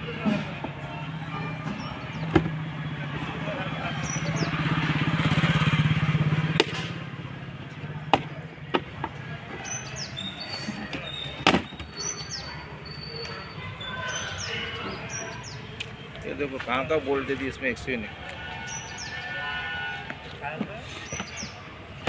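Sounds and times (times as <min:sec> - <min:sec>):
small birds chirping: 0:03.9 - 0:05.7, 0:09.5 - 0:16.8, 0:18.6 - 0:19.6, 0:20.2 - 0:21.7.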